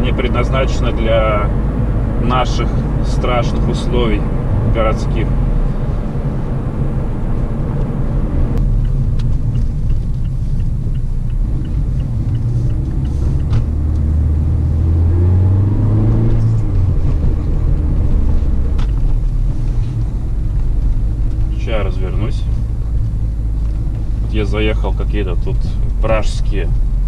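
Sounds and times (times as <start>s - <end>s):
car engine revving: 0.0s - 27.0s
road rumble in car cabin: 0.0s - 27.0s.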